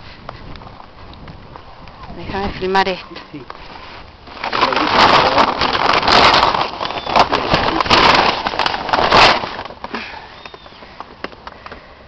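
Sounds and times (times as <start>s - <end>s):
plastic sheeting crinkling: 3.6s - 10.8s.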